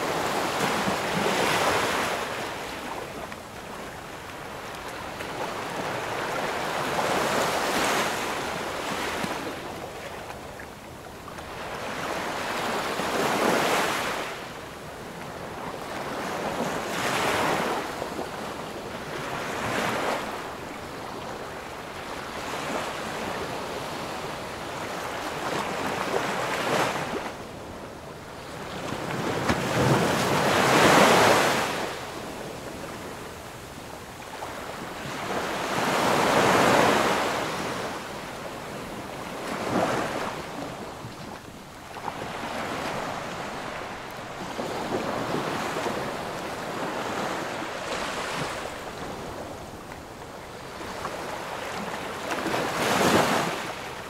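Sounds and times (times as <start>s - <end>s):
ocean waves breaking: 0.0s - 10.1s, 28.4s - 54.0s.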